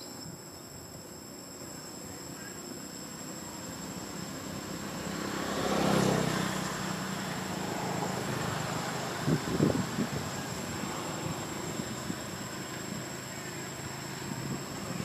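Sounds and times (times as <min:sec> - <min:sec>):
high insect trilling: 0:00.0 - 0:15.0
passing vehicle engine: 0:03.2 - 0:15.0.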